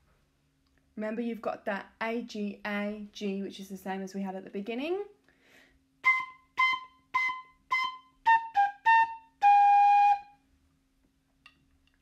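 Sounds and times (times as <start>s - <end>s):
recorder melody: 6.0s - 10.4s.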